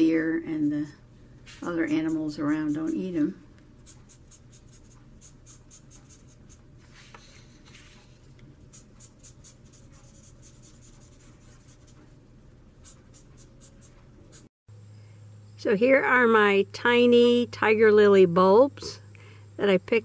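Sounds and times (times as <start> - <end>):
marker scratching on paper: 1.6 - 12.2, 12.8 - 14.5.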